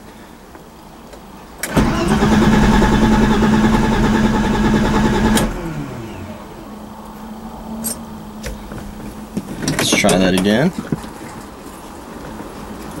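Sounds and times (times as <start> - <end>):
starter motor cranking engine: 1.6 - 6.5.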